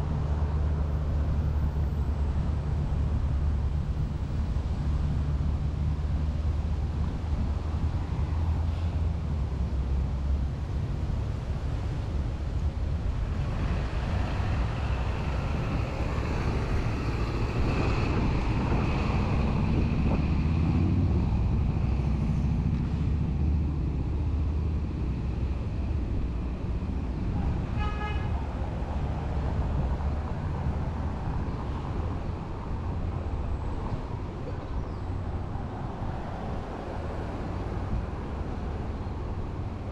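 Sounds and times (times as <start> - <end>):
street traffic passing: 0.0 - 39.9
car horn toot: 27.8 - 28.4.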